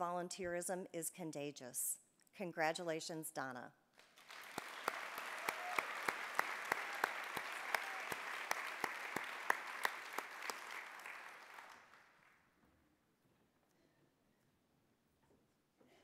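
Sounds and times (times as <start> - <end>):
audience applauding: 4.0 - 12.4
sharp close claps: 4.0 - 12.4.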